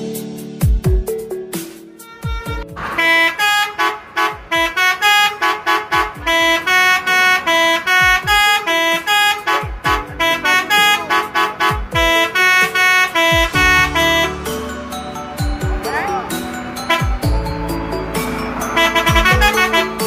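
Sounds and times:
deep drum beat: 0.6s - 1.3s, 8.0s - 8.6s, 9.6s - 14.8s, 15.4s - 18.4s, 19.0s - 19.7s
tuned air horns playing a tune: 2.0s - 15.0s, 15.8s - 20.0s.

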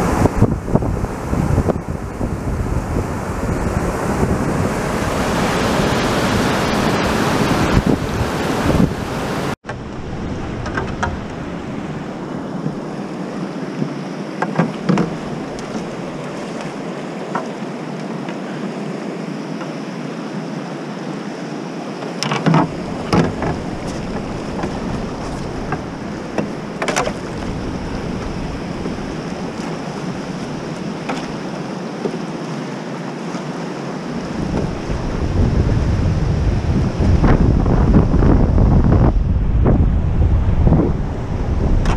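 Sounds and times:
river water rushing: 0.0s - 38.7s
paddle knocking against hull: 10.5s - 11.5s, 12.6s - 12.9s, 13.7s - 17.6s, 22.2s - 32.5s, 34.3s - 35.5s.

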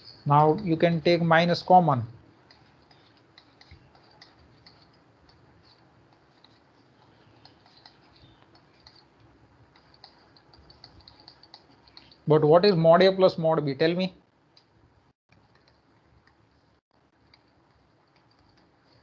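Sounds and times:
stylus tapping on tablet screen: 2.4s - 12.2s.

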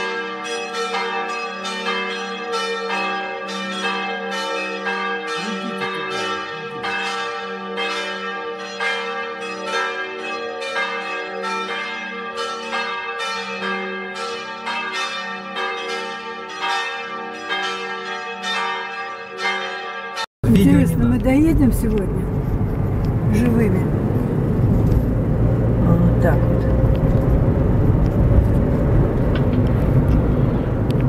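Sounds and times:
church bells pealing: 0.0s - 24.6s.

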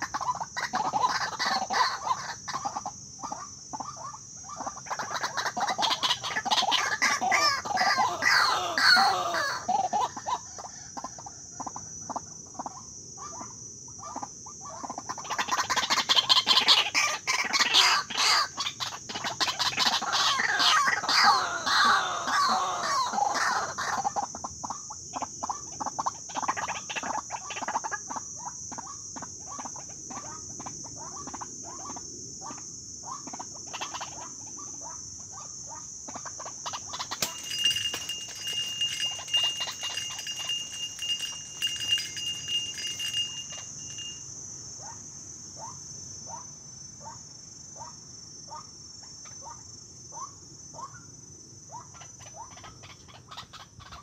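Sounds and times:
waterhens calling harshly: 5.1s - 10.2s, 20.0s - 24.0s.

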